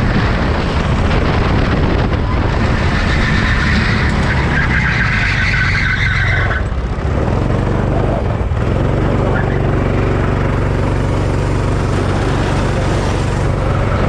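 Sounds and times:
car engine running hard: 0:00.0 - 0:14.0
tyres squealing: 0:02.2 - 0:06.8.

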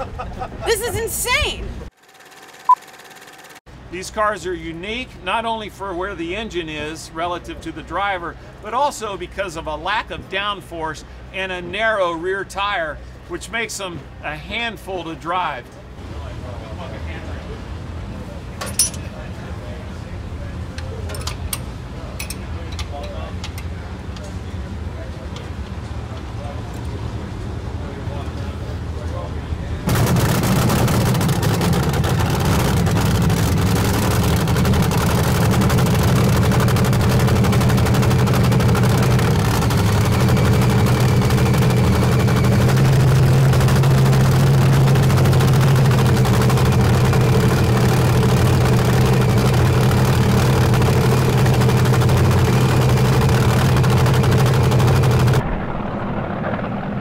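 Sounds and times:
dragster engine running: 0:29.8 - 0:55.5.

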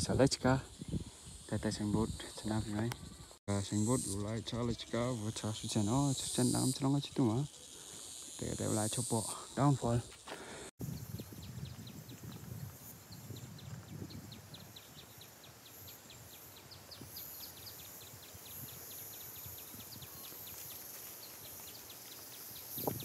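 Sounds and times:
wind rumble on microphone: 0:00.0 - 0:03.3, 0:10.8 - 0:15.2, 0:22.6 - 0:23.0.

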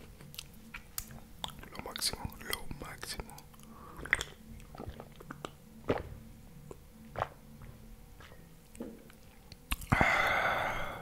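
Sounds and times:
person swallowing gulps: 0:04.0 - 0:09.1.

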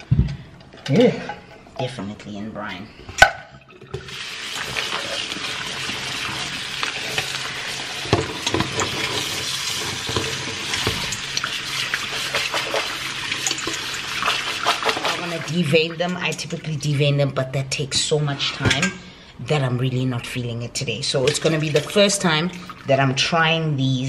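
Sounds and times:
tap water running into sink: 0:03.2 - 0:16.6.

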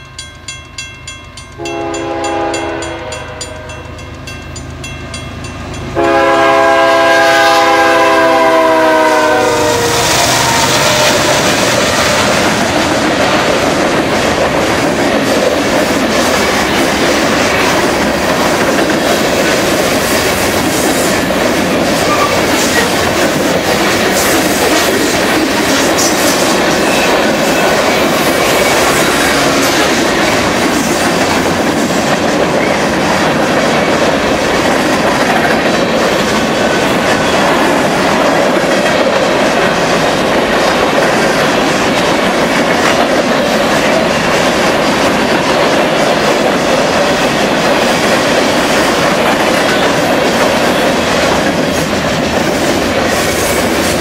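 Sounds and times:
freight cars rumbling on rails: 0:03.9 - 0:54.0.

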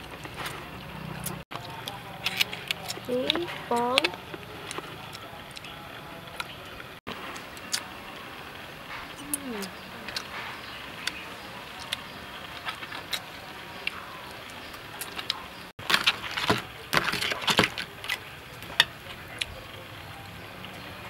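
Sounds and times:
crab shells cracking: 0:14.5 - 0:19.5.

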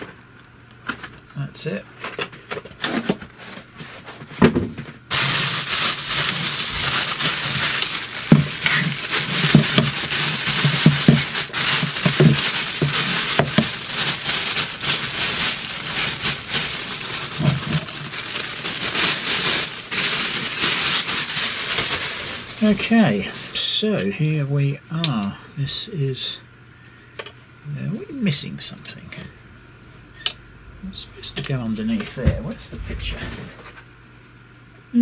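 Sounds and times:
plastic bag crinkling: 0:05.1 - 0:23.6.

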